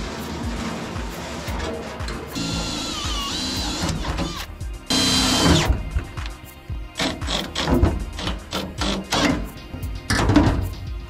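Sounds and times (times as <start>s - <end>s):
cordless drill driving fasteners: 2.4s - 6.4s, 7.0s - 9.5s.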